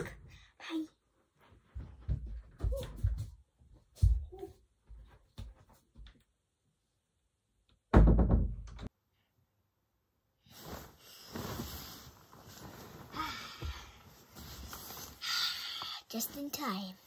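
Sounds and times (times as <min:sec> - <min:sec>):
bedding rustling: 0:10.4 - 0:15.2.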